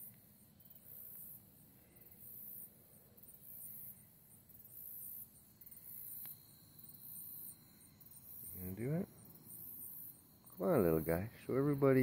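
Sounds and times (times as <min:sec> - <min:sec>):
katydids singing: 0:05.4 - 0:12.0.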